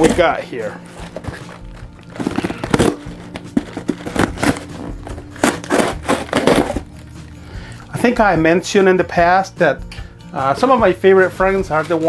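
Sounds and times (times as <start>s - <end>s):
cardboard crinkling: 0.0s - 7.4s
scissors snipping cardboard: 5.3s - 6.8s.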